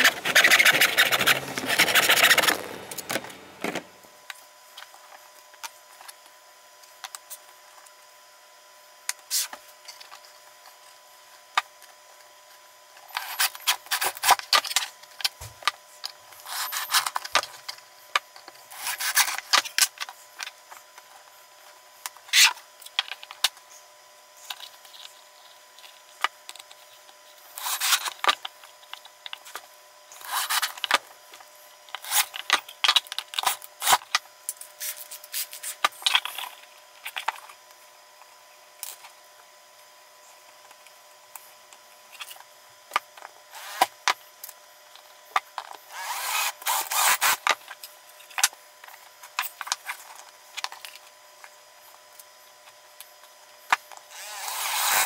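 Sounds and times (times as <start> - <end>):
wood blocks scraping: 0.0 - 3.9.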